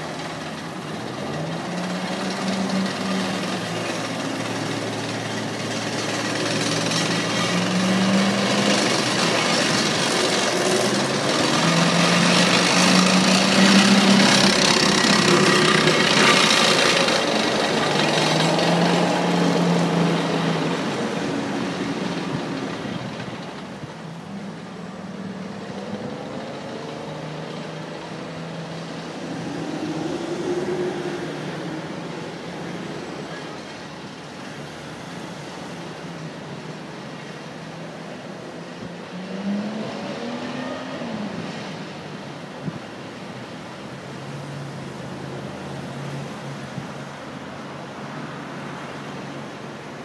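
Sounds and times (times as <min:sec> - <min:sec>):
passing vehicle engine: 0:00.0 - 0:50.0
street traffic: 0:00.0 - 0:50.0
utility vehicles driving past: 0:00.0 - 0:50.0.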